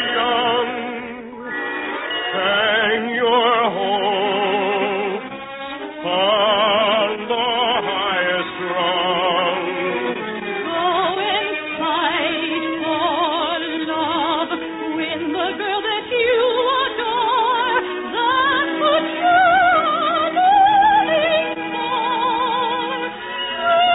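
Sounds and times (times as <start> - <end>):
soprano singing with vibrato: 0.0 - 5.3, 10.6 - 23.9
orchestra playing: 0.0 - 23.9.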